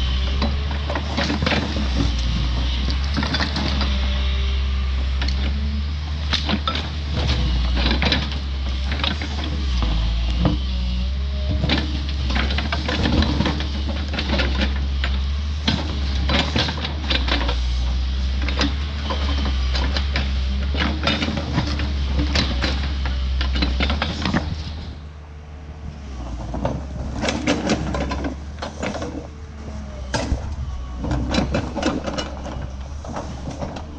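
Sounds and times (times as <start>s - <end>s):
diesel engine running: 0.0s - 33.9s.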